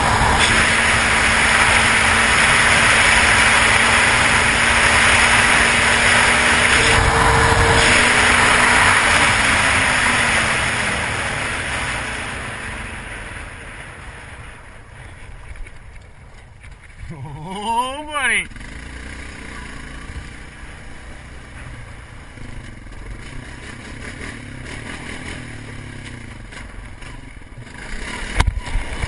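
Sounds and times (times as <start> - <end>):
wind rushing over camera: 0.0 - 17.2
quad engine droning: 0.0 - 29.0.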